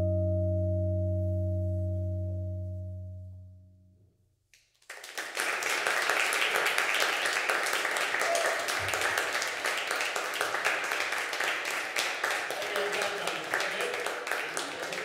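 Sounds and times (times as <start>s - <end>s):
audience applauding: 4.8s - 15.0s.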